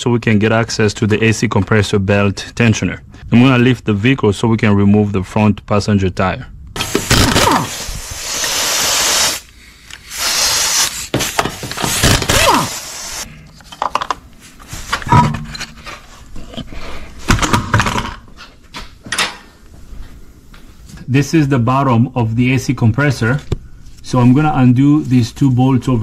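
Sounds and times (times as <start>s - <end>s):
power tool whirring bursts: 6.8s - 13.3s.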